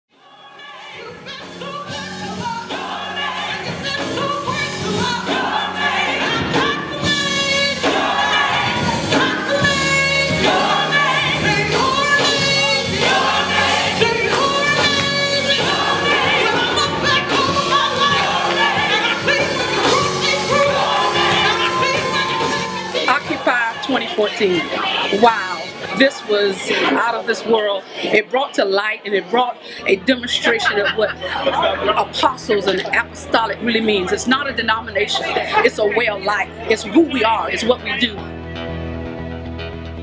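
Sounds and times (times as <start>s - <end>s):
gospel choir singing: 0.1s - 38.3s
instrumental accompaniment: 0.9s - 26.9s.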